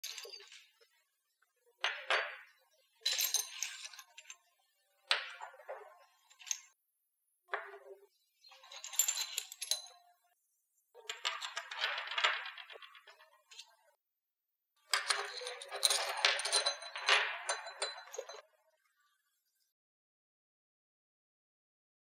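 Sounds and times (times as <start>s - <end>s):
porcelain shards clinking on table: 3.1s - 4.4s, 8.6s - 10.0s, 14.9s - 18.4s.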